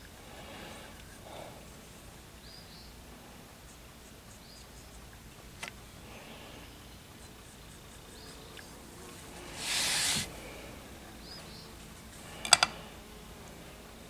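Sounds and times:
tool scraping plaster mold: 0:09.4 - 0:10.3.

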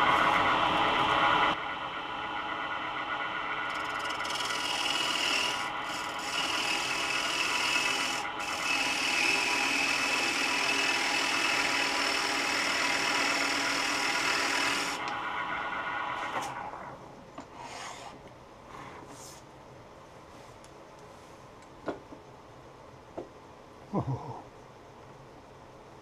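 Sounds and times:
scraper cutting wood on lathe: 0:03.7 - 0:15.1.

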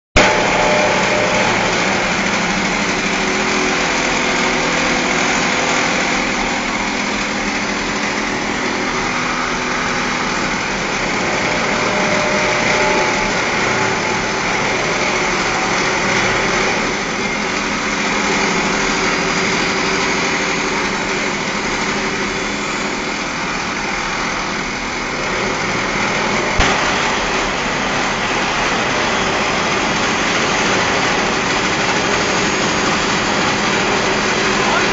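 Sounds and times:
grinding wheel grinding steel: 0:00.2 - 0:34.9
machine drive running: 0:00.2 - 0:34.9.

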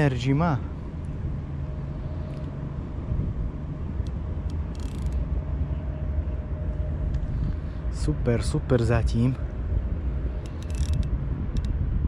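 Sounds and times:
distant road traffic rumble: 0:00.0 - 0:12.0.

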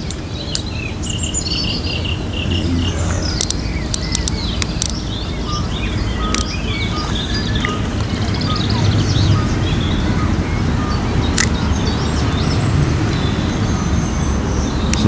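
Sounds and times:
small birds chirping and trilling: 0:00.0 - 0:15.0
low rumble: 0:01.0 - 0:13.3
sharp click: 0:06.3 - 0:06.6.

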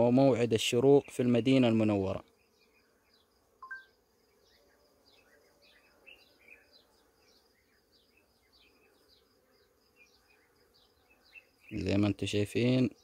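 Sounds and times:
honeybees humming: 0:00.0 - 0:13.0
faint high chirps: 0:03.6 - 0:04.0.

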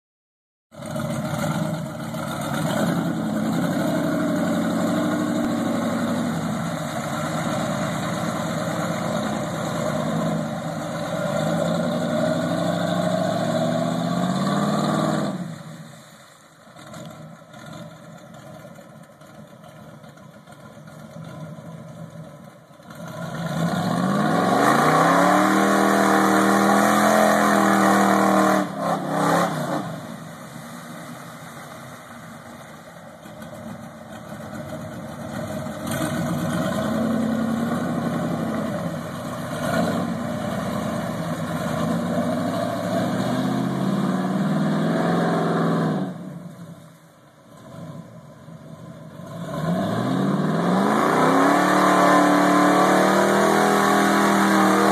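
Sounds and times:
truck engine revving: 0:00.8 - 0:15.6, 0:22.9 - 0:30.4, 0:33.4 - 0:46.5, 0:47.6 - 0:54.9.

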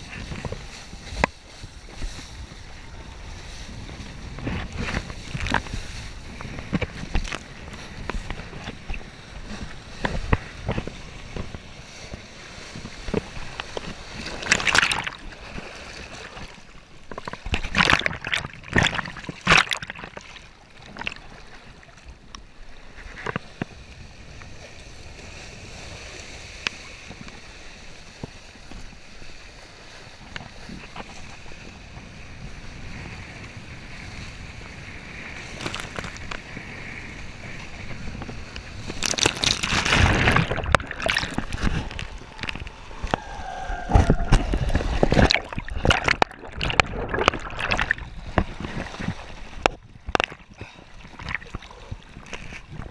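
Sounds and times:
water splashing: 0:00.0 - 0:22.0, 0:37.4 - 0:52.9
rush of water and wind: 0:00.0 - 0:52.9.

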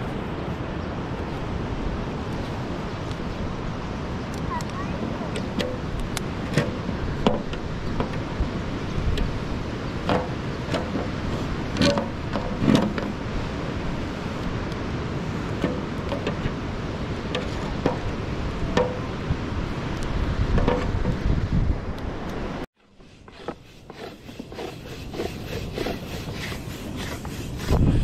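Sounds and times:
wind rumbling on microphone: 0:00.0 - 0:28.0.

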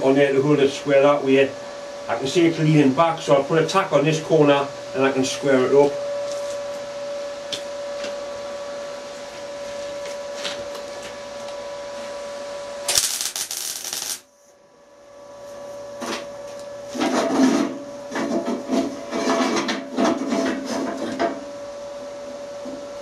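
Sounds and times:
steady hum: 0:00.0 - 0:20.3
welder crackling buzz: 0:02.1 - 0:14.5
knocks and scrapes on steel: 0:17.0 - 0:21.3.

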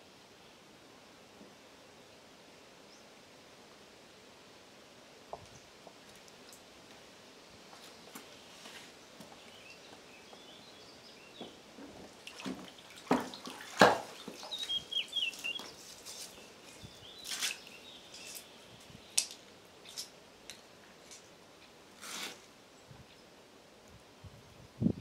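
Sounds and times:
bird chirping: 0:09.4 - 0:11.6, 0:14.1 - 0:19.3.

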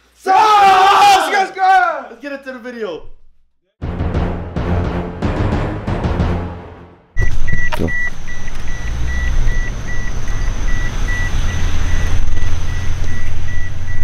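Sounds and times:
intro music with deep drum hits: 0:03.8 - 0:07.6
dashboard warning chime beeping: 0:07.2 - 0:14.0.

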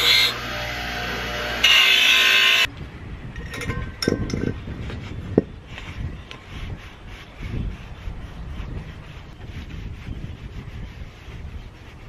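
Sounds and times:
bench grinder motor running: 0:00.0 - 0:02.7
grinding paint off steel: 0:00.0 - 0:02.7
cloth rubbing on metal: 0:04.7 - 0:12.0.

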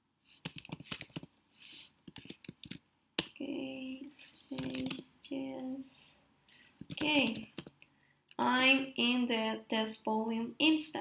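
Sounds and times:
computer keyboard typing: 0:00.4 - 0:01.3, 0:02.0 - 0:03.4, 0:04.5 - 0:05.0, 0:06.8 - 0:07.8.

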